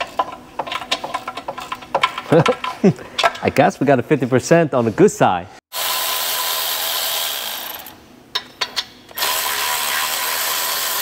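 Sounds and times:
electric ratchet spinning: 5.7s - 8.0s, 9.1s - 11.0s.

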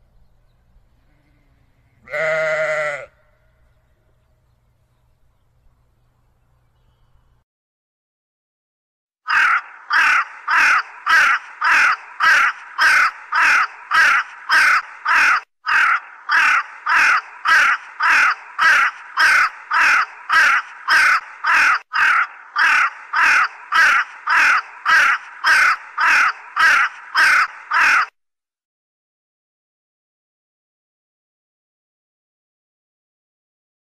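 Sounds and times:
raven calling: 1.1s - 3.4s, 9.3s - 28.2s.

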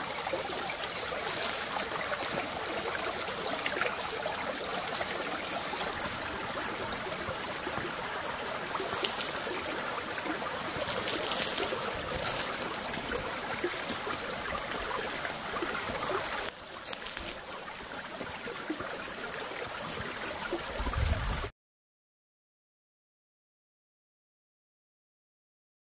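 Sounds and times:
stream trickling over stones: 0.0s - 21.5s.

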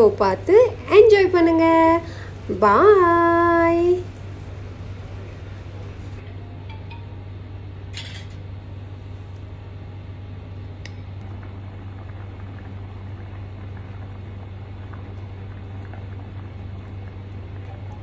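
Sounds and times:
steady low hum: 0.0s - 18.0s
soup simmering: 10.9s - 18.0s.

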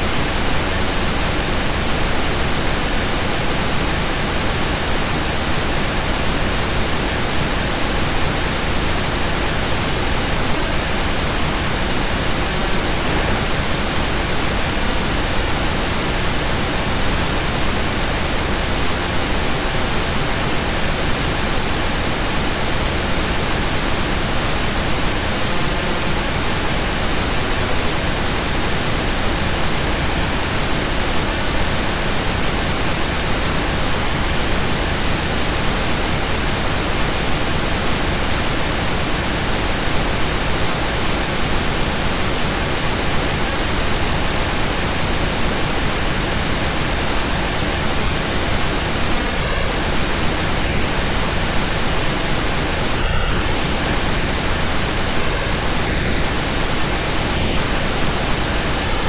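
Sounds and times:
loud steady hiss: 0.0s - 59.0s.

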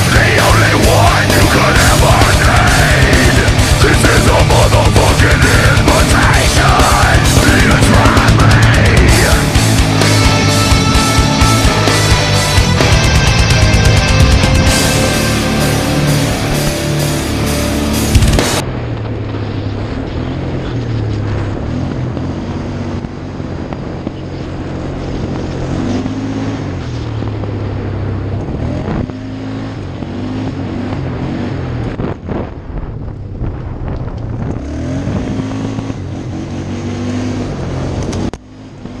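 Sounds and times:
atv engine revving: 0.0s - 32.5s, 34.1s - 39.0s
wind buffeting microphone: 31.6s - 36.2s.

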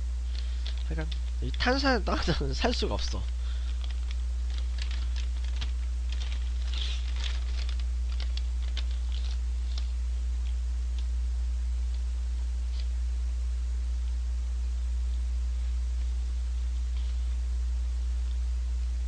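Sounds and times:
low electrical hum: 0.0s - 19.0s
paper bag crinkling: 0.3s - 10.0s.

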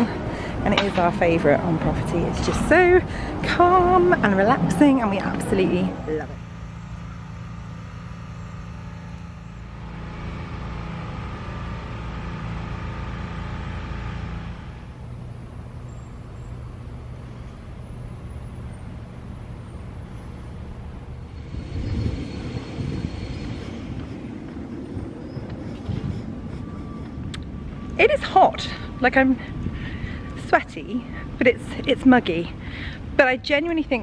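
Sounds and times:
steady mechanical hum: 0.0s - 34.0s
low uneven rumbling: 20.1s - 31.4s.

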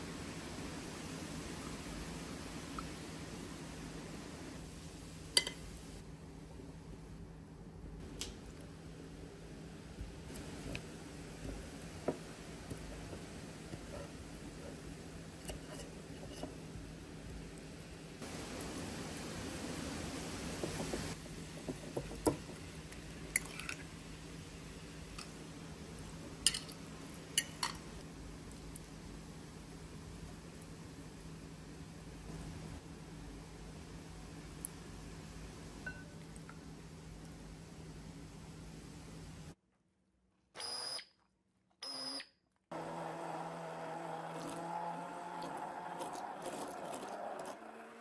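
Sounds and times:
faint steady hum: 0.0s - 48.0s
electric blender running: 42.7s - 48.0s.

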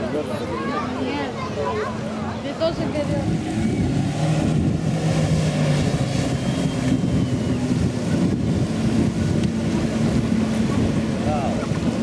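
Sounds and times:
jet ski engines running: 0.0s - 12.0s
wind on microphone: 2.4s - 12.0s.

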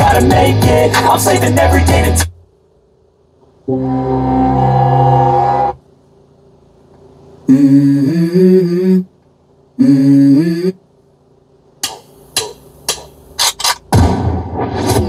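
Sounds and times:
music through car speakers: 0.0s - 2.4s
held chords: 3.6s - 5.8s
sharp percussive hits: 11.8s - 15.0s.

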